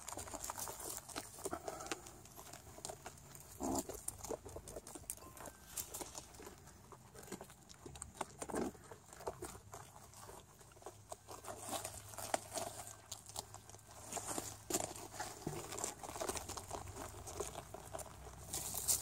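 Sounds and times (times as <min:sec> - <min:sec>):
rabbits chewing cabbage: 0:00.0 - 0:19.0.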